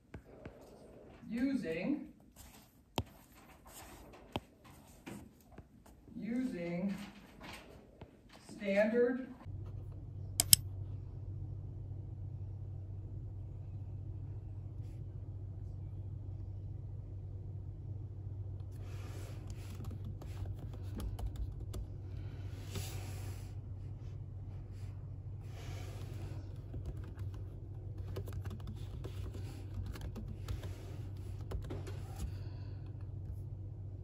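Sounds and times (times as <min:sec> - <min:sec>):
steady low hum: 0:00.0 - 0:34.0
laptop keyboard key clicks: 0:10.4 - 0:10.6.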